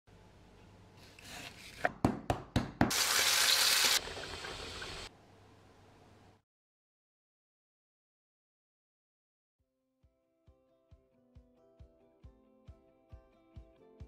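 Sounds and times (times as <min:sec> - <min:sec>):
meat sizzling in a pan: 0:02.9 - 0:05.1.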